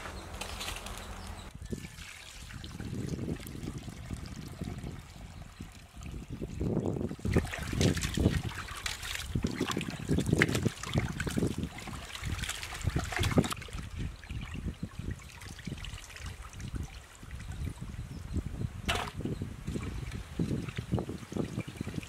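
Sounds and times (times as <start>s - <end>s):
water pouring into a pot: 1.7s - 13.6s.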